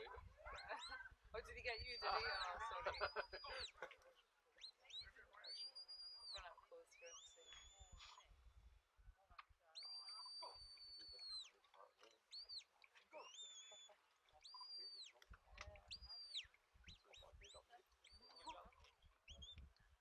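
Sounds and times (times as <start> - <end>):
distant shepherd's whistle: 4.6 - 8.2, 9.8 - 11.6, 12.3 - 15.2.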